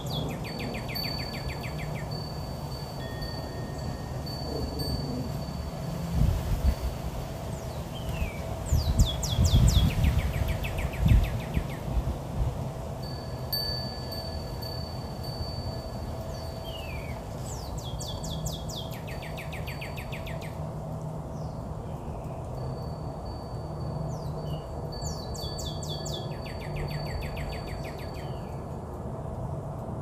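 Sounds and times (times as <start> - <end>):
songbird trilling: 0.0 - 2.4, 7.6 - 12.0, 16.3 - 20.6, 24.1 - 28.6.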